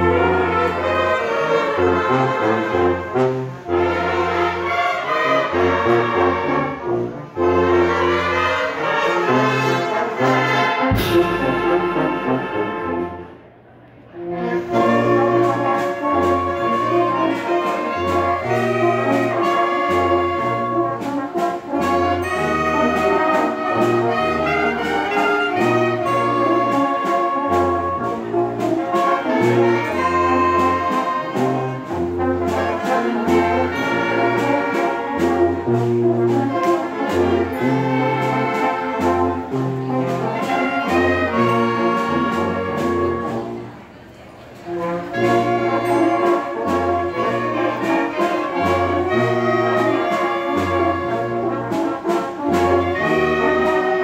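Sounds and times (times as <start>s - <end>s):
wind band playing: 0.0s - 54.0s
percussion beat: 10.4s - 13.3s.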